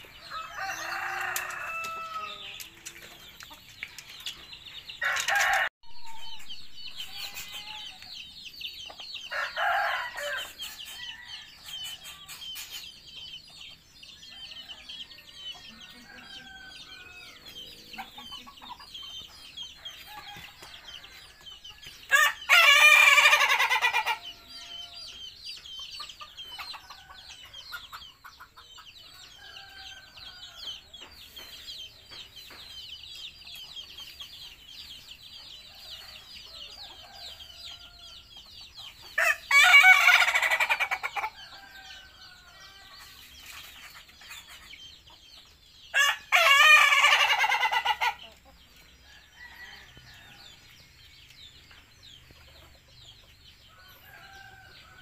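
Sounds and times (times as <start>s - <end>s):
rooster crowing: 0.3s - 2.5s, 9.3s - 10.5s.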